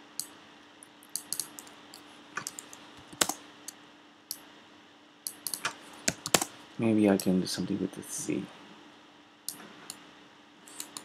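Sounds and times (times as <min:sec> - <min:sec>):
faint steady hum: 0:00.0 - 0:11.0
keyboard keys clicking: 0:02.4 - 0:03.4, 0:05.3 - 0:06.5.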